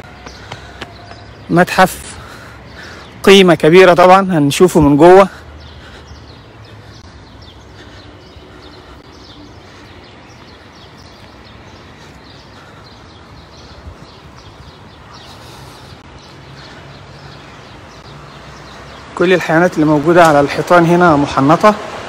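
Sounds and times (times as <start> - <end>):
small birds chirping: 0.0 - 21.8
distant traffic rumble: 0.0 - 22.0.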